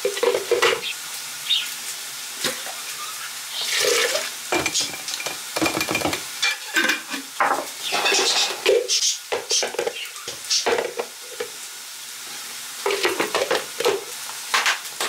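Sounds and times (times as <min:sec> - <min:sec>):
food pouring: 0:00.0 - 0:08.8
plastic and glass knocks: 0:04.6 - 0:06.3.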